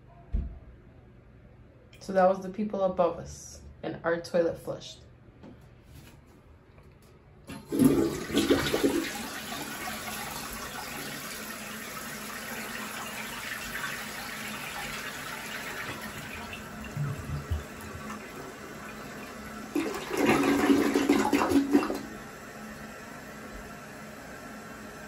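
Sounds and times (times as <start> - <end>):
toilet flushing: 7.5 - 25.0.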